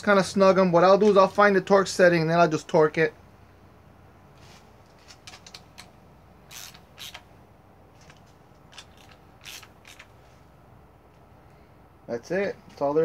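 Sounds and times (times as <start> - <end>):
hand ratchet clicking: 6.5 - 7.3, 8.1 - 10.1.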